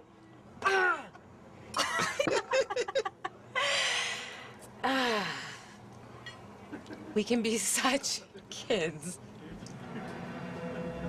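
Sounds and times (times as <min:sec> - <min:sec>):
person laughing: 0:01.8 - 0:03.3.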